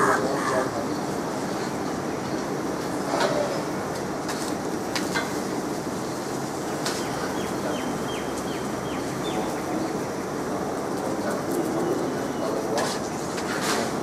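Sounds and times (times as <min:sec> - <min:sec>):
city street traffic: 0:00.0 - 0:14.0
bird chirping: 0:06.7 - 0:09.6.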